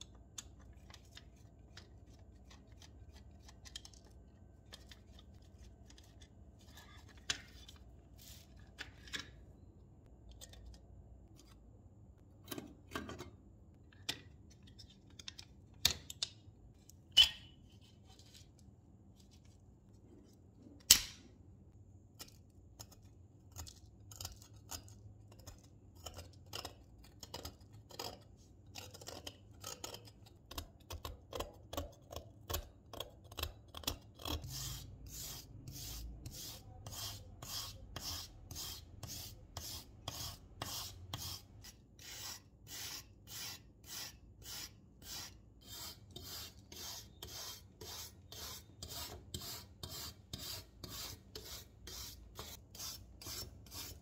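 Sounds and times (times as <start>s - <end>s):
metal scraper scraping rust: 33.3s - 54.0s.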